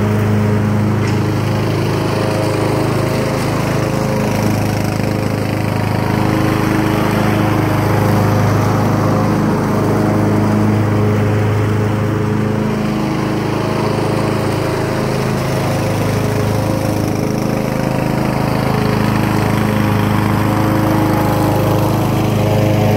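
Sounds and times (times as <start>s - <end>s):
lawn tractor engine mowing: 0.0s - 22.9s.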